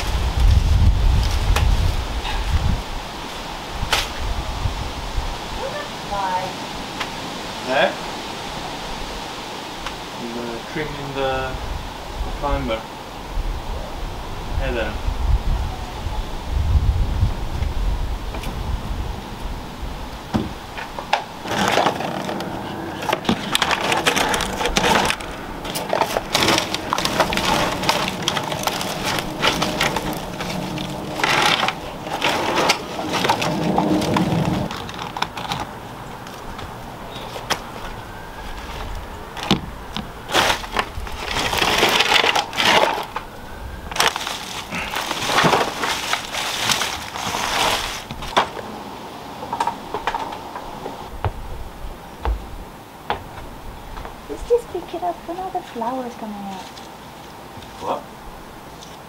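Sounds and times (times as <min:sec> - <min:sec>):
leaves rustling: 0:00.0 - 0:59.0
woody stems snapping: 0:03.9 - 0:04.2, 0:20.8 - 0:36.7.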